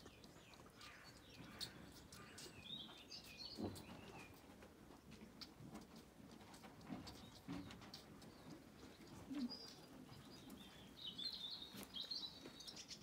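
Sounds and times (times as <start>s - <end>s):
small birds twittering: 0.0s - 5.6s, 6.8s - 13.0s.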